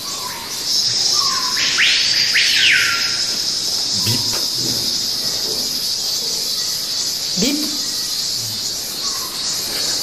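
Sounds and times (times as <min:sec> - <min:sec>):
steady high hiss: 0:03.0 - 0:10.0.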